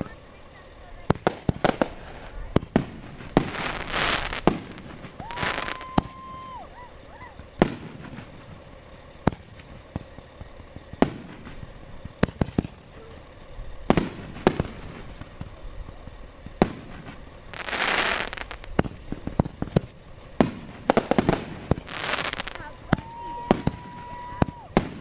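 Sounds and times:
hissing rush: 0.0s - 9.7s
fireworks bangs: 0.0s - 25.0s.

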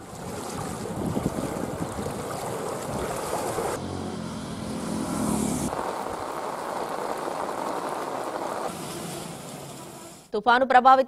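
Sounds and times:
engine hum: 0.0s - 10.3s
steady rushing outdoor noise: 0.0s - 10.3s.

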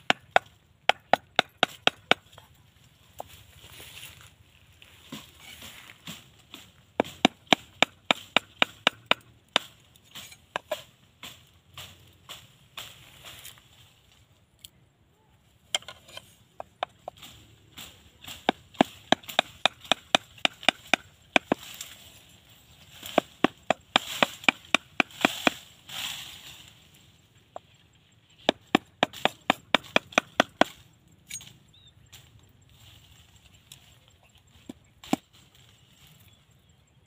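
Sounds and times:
machete chopping bamboo: 0.0s - 2.4s, 5.1s - 12.9s, 16.6s - 22.0s, 22.9s - 25.8s, 28.4s - 30.8s, 34.6s - 35.4s.

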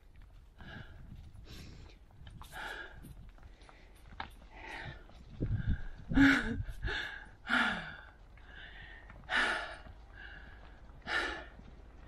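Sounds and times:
person breathing heavily: 0.6s - 11.8s.

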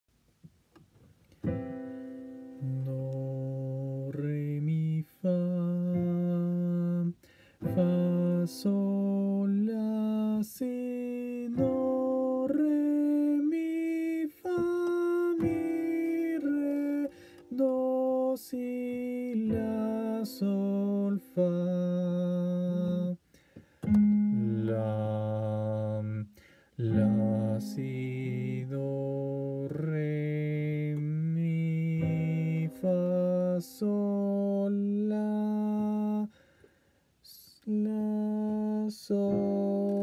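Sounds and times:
keyboard playing held notes: 14.4s - 21.5s, 23.8s - 25.8s.

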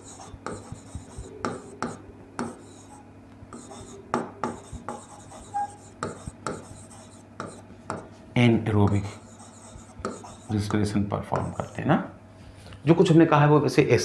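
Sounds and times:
marker squeak: 0.0s - 7.6s
marker pen writing on whiteboard: 0.0s - 8.2s, 8.8s - 11.9s.

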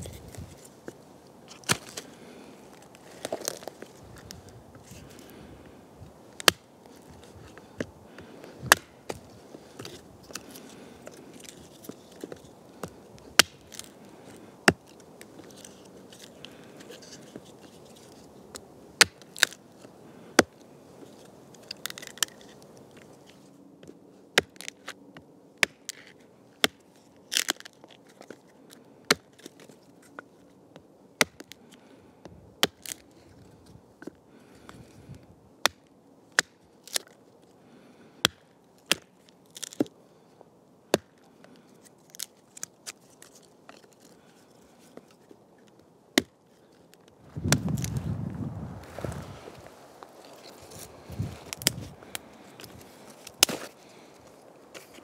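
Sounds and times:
axe chopping wood: 6.4s - 6.6s, 8.6s - 9.2s, 12.8s - 13.9s, 31.2s - 31.6s, 32.6s - 33.0s.

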